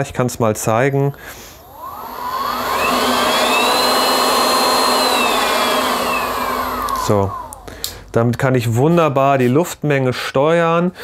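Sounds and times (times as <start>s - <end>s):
electric air pumps whining: 1.3s - 8.1s.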